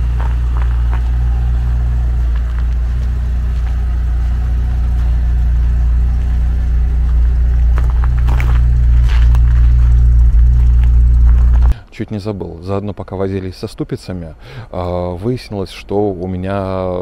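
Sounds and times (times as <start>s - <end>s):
car engine idling: 0.0s - 11.8s.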